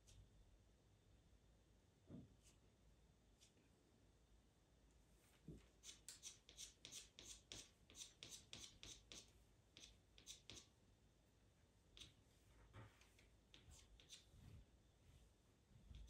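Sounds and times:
pencil scratching on paper: 5.8s - 10.7s, 13.0s - 14.5s.

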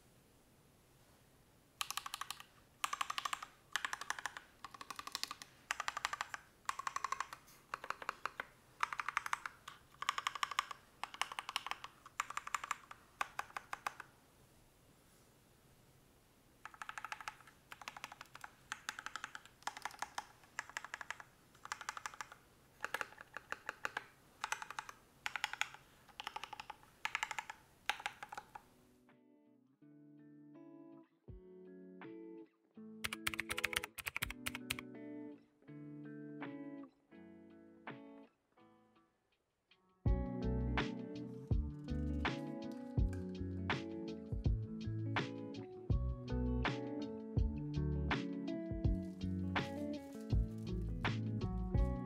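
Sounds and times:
mechanical keyboard typing: 1.8s - 14.1s, 16.6s - 28.7s, 33.0s - 34.8s.

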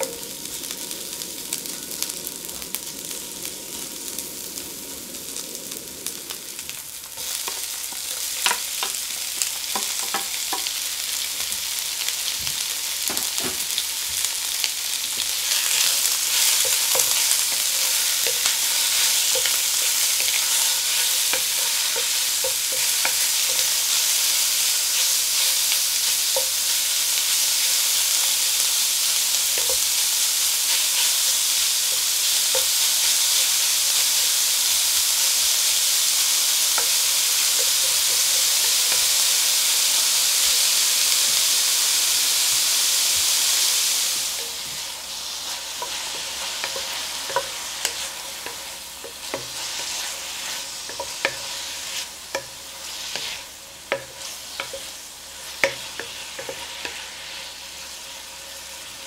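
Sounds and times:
meat sizzling in oil: 0.0s - 59.0s
wooden spatula scraping pan: 44.4s - 54.9s.

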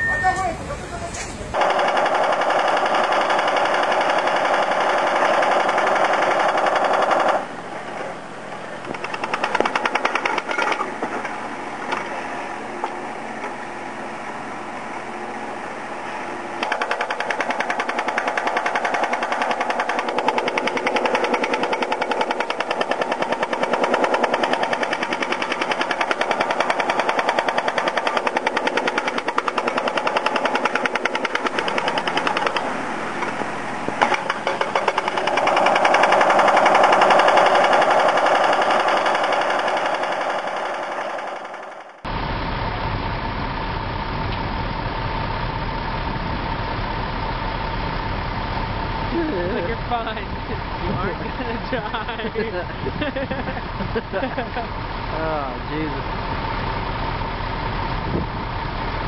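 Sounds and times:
hydraulic breaker hammering concrete: 1.6s - 7.6s, 8.8s - 12.1s, 16.6s - 42.0s.

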